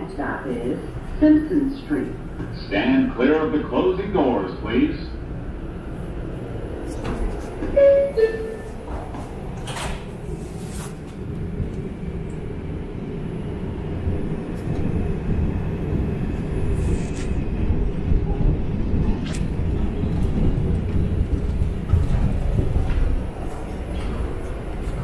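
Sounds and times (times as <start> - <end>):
train wheels rumbling on track: 0.0 - 25.0
two-note door chime: 7.8 - 8.7.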